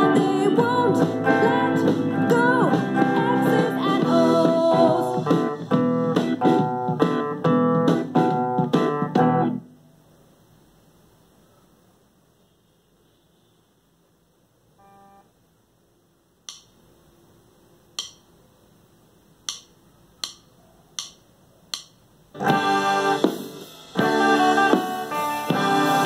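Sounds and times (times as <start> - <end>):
electric guitar chords strummed: 0.0 - 9.7, 22.4 - 26.0
sharp clicks: 16.5 - 16.8, 17.9 - 18.3, 19.4 - 22.0.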